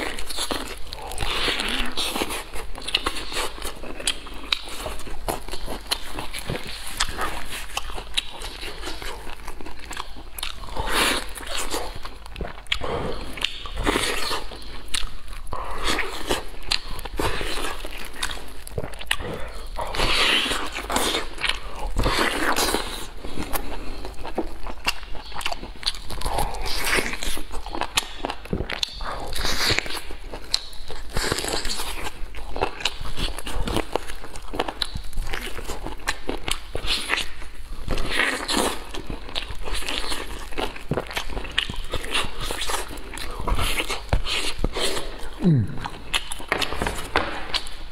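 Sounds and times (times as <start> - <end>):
person chewing meat: 0.0 - 47.9
mouth clicks: 43.2 - 47.7.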